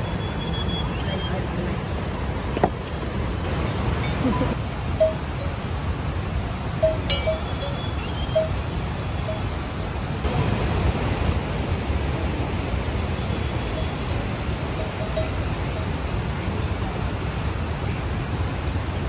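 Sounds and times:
steady rain: 0:00.0 - 0:06.9, 0:08.8 - 0:19.0
pitched plinks: 0:04.0 - 0:05.5, 0:06.8 - 0:08.6.

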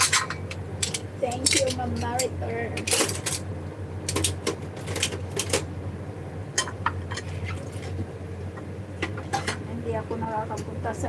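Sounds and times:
kitchen things clicking and clattering: 0:00.0 - 0:05.7, 0:06.6 - 0:07.9, 0:09.0 - 0:09.6
steady low hum: 0:00.0 - 0:11.0.

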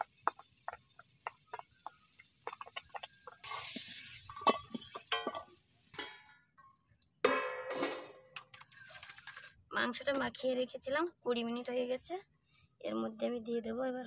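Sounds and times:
metal utensils clinking on steel bowls: 0:03.3 - 0:09.5.

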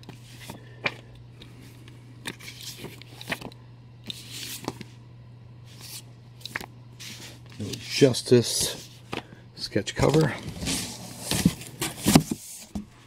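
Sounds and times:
steady low hum: 0:00.0 - 0:13.0
paper rustling: 0:02.3 - 0:04.9.

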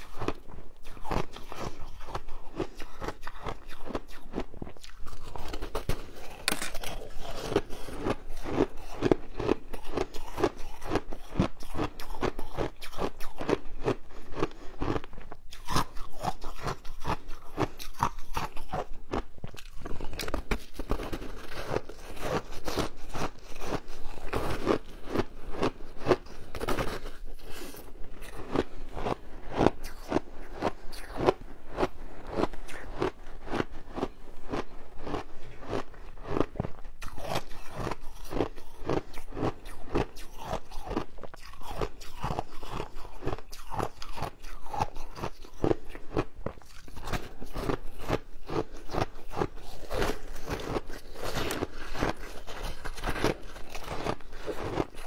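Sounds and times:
teeth crunching ice: 0:00.0 - 0:55.0.

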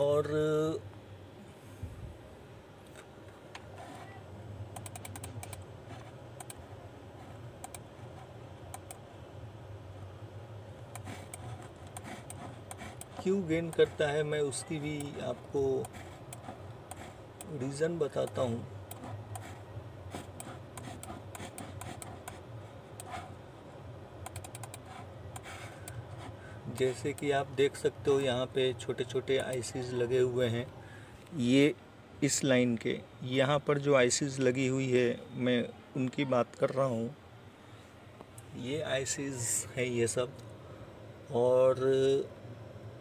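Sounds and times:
low steady hum: 0:00.0 - 0:43.0
scroll wheel ticks: 0:04.7 - 0:05.6, 0:06.4 - 0:06.6, 0:08.7 - 0:09.0, 0:10.9 - 0:14.0, 0:24.2 - 0:26.0, 0:26.7 - 0:27.3, 0:29.3 - 0:29.7
computer keys clicking: 0:04.7 - 0:05.7, 0:07.6 - 0:07.9, 0:08.7 - 0:09.0, 0:24.2 - 0:26.0
computer mouse clicks: 0:04.7 - 0:05.7, 0:06.4 - 0:06.6, 0:07.6 - 0:07.9, 0:08.7 - 0:09.0, 0:10.9 - 0:13.9, 0:15.8 - 0:17.6, 0:18.2 - 0:22.4, 0:24.2 - 0:26.0.

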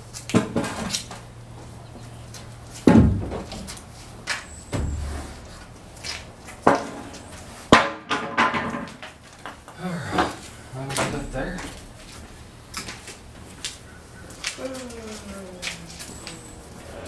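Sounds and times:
wooden knocks and thuds: 0:02.8 - 0:03.7, 0:04.7 - 0:05.7.

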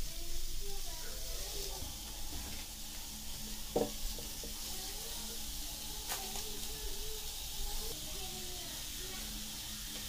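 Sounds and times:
onions sizzling on grill: 0:00.0 - 0:10.0.

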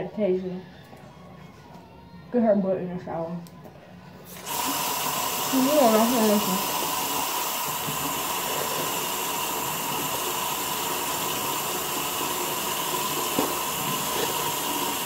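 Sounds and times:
running water hissing: 0:04.2 - 0:15.0
toothbrush scrubbing: 0:05.8 - 0:15.0.

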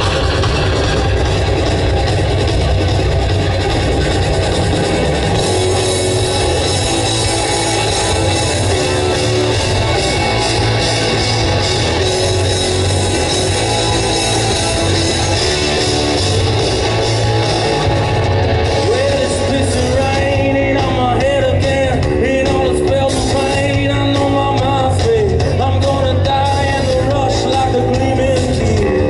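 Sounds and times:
hard rock band playing live: 0:00.0 - 0:29.0
male lead vocal: 0:18.7 - 0:29.0.

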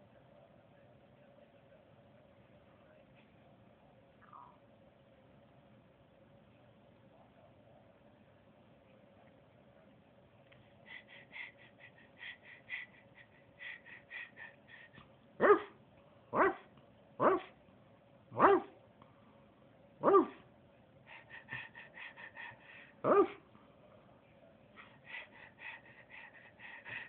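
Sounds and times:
dog barking: 0:15.4 - 0:17.6, 0:18.4 - 0:18.8, 0:20.0 - 0:20.4, 0:23.0 - 0:23.4.

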